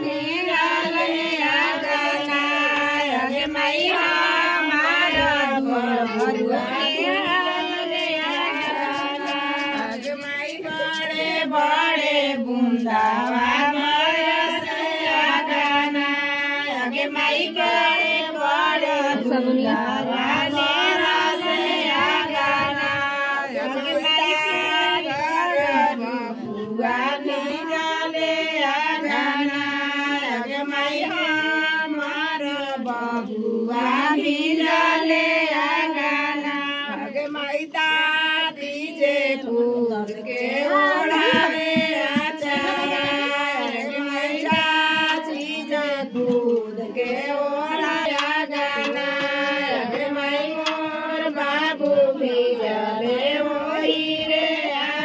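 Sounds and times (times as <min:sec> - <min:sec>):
women singing folk song: 0:00.0 - 0:55.0.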